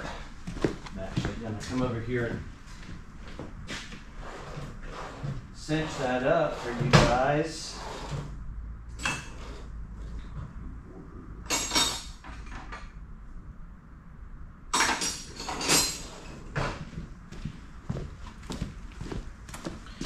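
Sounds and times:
steady low hum: 0.0s - 20.0s
tools clinking and clattering: 11.5s - 12.8s, 14.7s - 16.4s.

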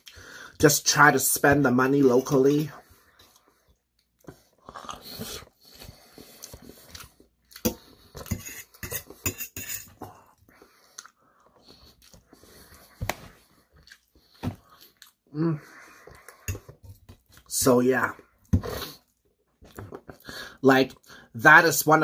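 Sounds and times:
chewing: 3.1s - 8.3s, 10.4s - 15.2s.

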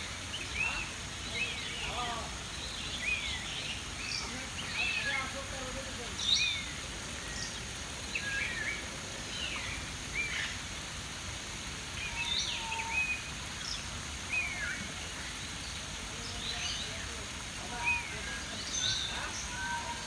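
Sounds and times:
stream water flowing: 0.0s - 20.0s.

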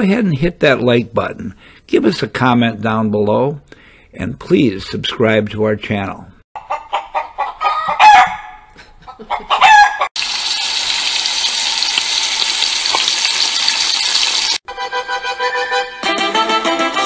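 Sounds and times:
chicken clucking: 6.6s - 10.1s
chicken crowing squawks: 6.6s - 10.1s
steady sizzle: 10.2s - 14.6s.

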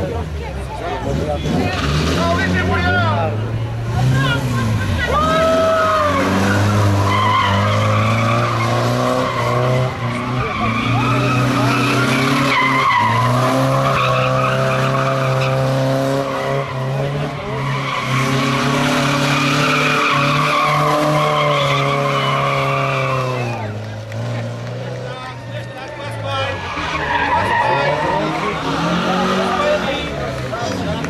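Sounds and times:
car engine at high revs: 0.0s - 31.0s
tyres squealing: 4.2s - 23.7s, 25.3s - 30.1s.

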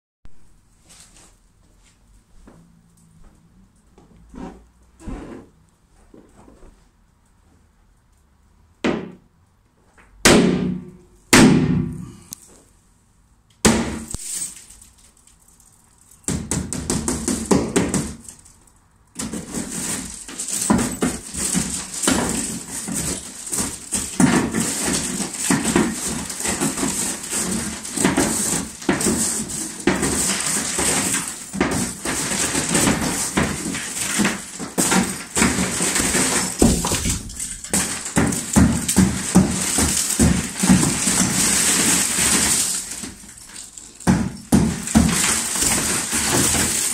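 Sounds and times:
hammer striking glass: 10.3s - 12.1s, 13.6s - 14.8s, 19.2s - 46.9s
glass crackling and tinkling: 14.0s - 16.3s, 35.0s - 46.9s.

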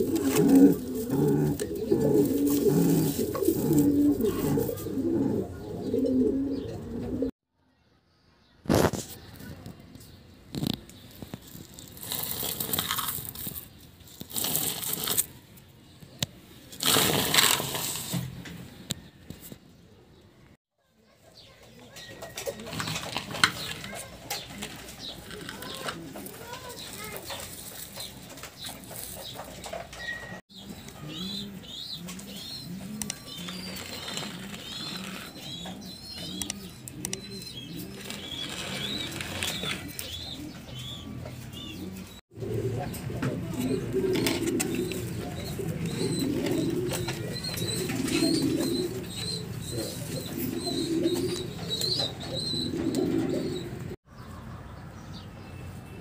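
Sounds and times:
dry straw rustling and crunching: 0.0s - 5.1s, 10.6s - 15.4s, 16.7s - 18.2s, 24.5s - 29.4s, 33.4s - 35.5s, 37.8s - 40.0s
pigeons cooing: 0.0s - 7.3s, 22.0s - 54.0s.

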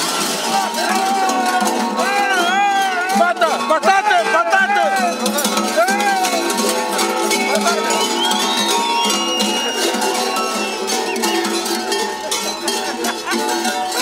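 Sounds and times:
large bells clanging: 0.0s - 14.0s
person shouting: 5.8s - 6.4s.

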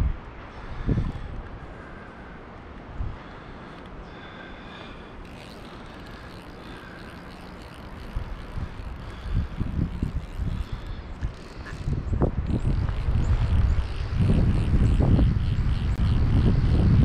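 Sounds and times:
wind buffeting the microphone: 0.0s - 1.8s, 5.2s - 17.0s
outdoor background rush: 0.0s - 17.0s.

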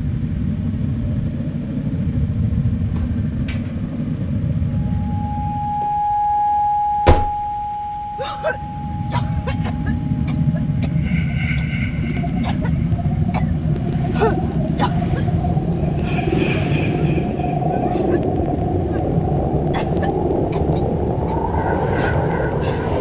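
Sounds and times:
car engine rumbling: 0.3s - 22.9s
car door shutting: 7.0s - 7.4s.

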